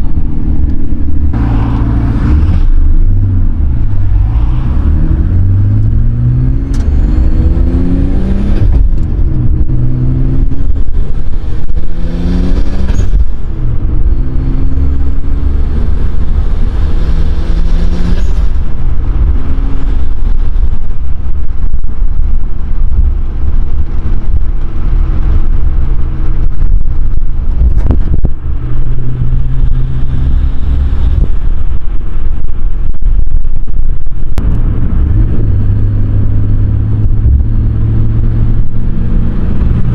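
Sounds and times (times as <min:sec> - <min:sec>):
car engine accelerating: 0:00.0 - 0:39.9.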